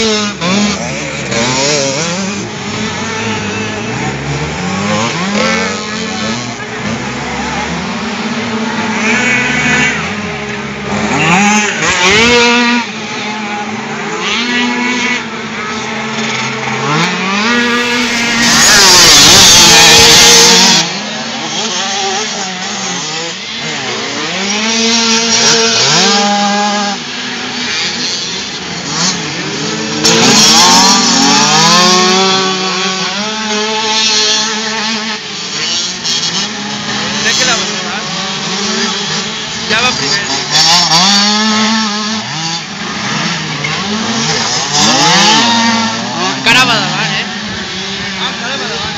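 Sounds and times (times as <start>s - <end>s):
dirt bike engines revving: 0.0s - 48.9s.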